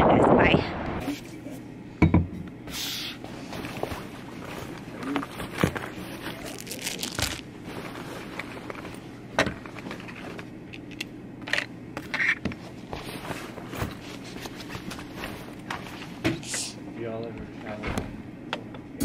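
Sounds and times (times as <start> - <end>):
plastic bag crinkling: 3.8 - 8.8.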